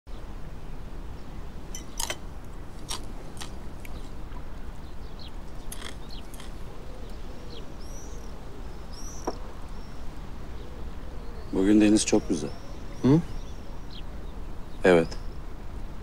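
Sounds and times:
low outdoor background: 0:00.1 - 0:16.0
small birds chirping: 0:00.1 - 0:16.0.

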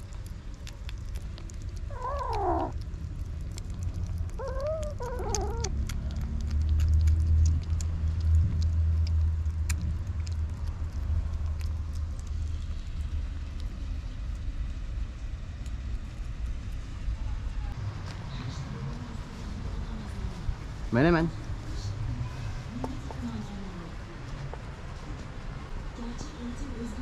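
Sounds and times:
kittens eating wet food: 0:00.0 - 0:27.0
low rumble: 0:00.0 - 0:27.0
kittens meowing: 0:01.9 - 0:02.8, 0:04.3 - 0:05.8.

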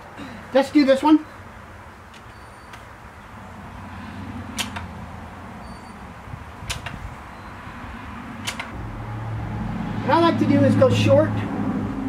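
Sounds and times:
faint low rumble: 0:08.8 - 0:12.0.

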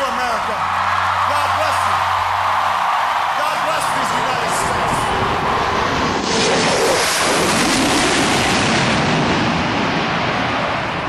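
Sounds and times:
crowd cheering and applauding: 0:00.0 - 0:06.2.

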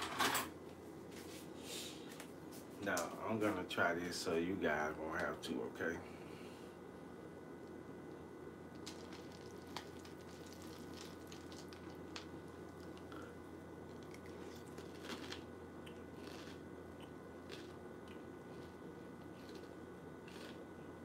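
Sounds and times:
low room hum: 0:00.0 - 0:21.0
chewing crunches and squishes: 0:08.7 - 0:20.9.

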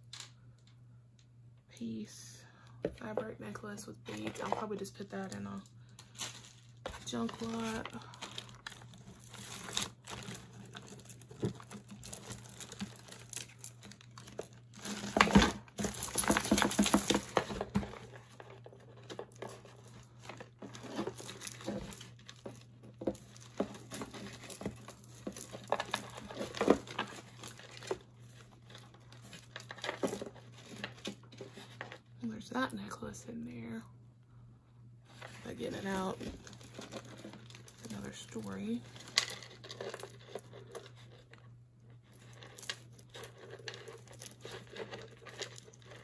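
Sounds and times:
jewelry chains clinking and rattling: 0:05.2 - 0:17.4, 0:42.2 - 0:46.0.

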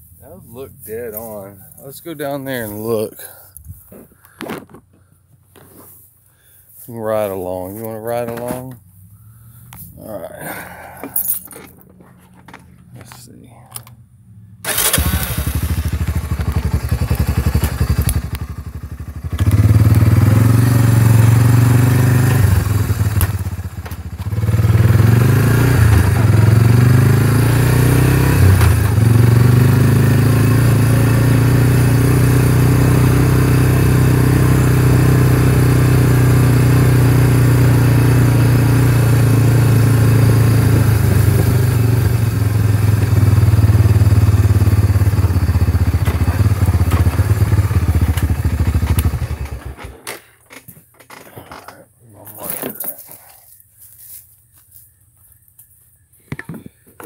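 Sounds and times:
atv engine running: 0:13.8 - 0:50.2.

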